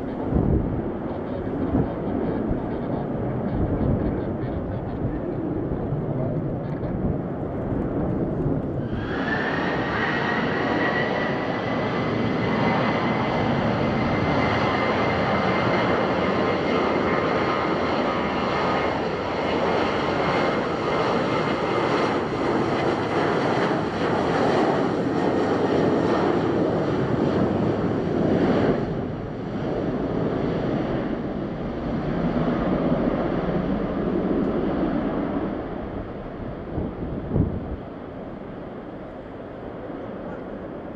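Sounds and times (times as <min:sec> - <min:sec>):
distant jet rumble: 0:00.0 - 0:40.9
jet roar with fan whine: 0:00.0 - 0:40.9.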